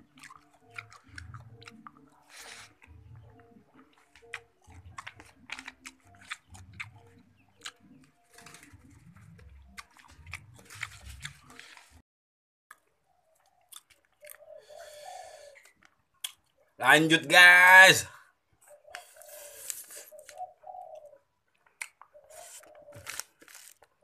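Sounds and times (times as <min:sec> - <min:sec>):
person chewing food: 0:00.0 - 0:12.0, 0:12.7 - 0:16.6, 0:18.6 - 0:24.0.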